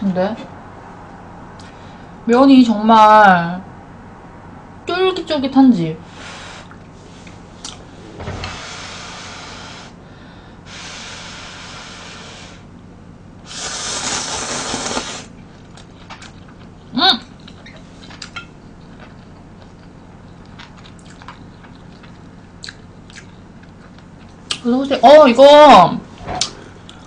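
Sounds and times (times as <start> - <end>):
person blowing on noodles: 6.1 - 6.7, 8.4 - 10.0, 10.7 - 12.7, 13.4 - 15.4
person chewing: 17.4 - 24.6.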